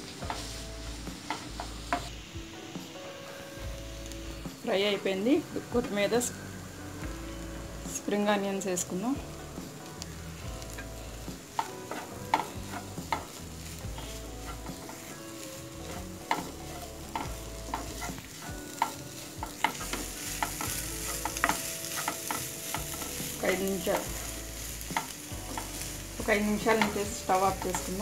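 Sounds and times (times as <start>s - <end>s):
light frying sizzle: 0.0s - 28.0s
wooden spatula scraping frying pan: 10.6s - 28.0s.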